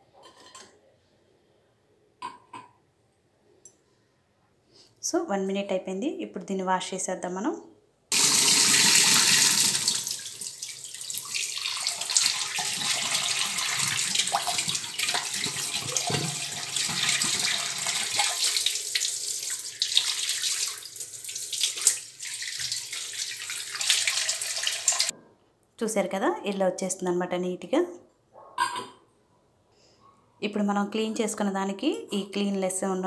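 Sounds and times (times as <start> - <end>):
tap water splashing over metal: 12.0 - 19.1, 21.6 - 22.9.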